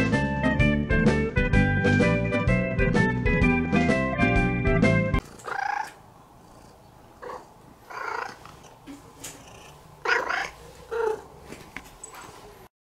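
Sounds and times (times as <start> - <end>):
cat calling: 5.2 - 6.0, 7.2 - 11.3.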